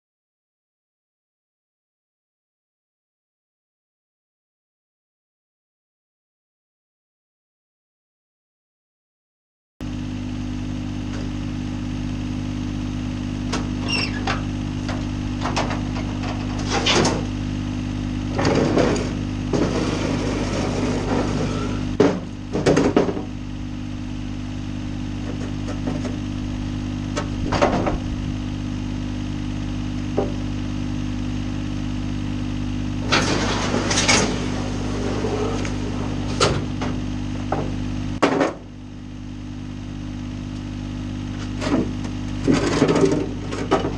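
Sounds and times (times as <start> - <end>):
engine idling: 10.7 - 43.9
metal ramps clanking and scraping: 13.8 - 17.3, 18.3 - 23.2, 33.0 - 37.0, 41.4 - 43.9.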